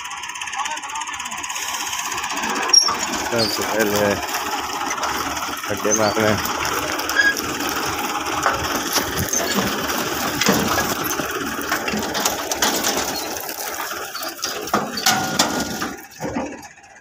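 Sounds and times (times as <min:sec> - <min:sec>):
tractor engine rattling: 0:00.0 - 0:17.0.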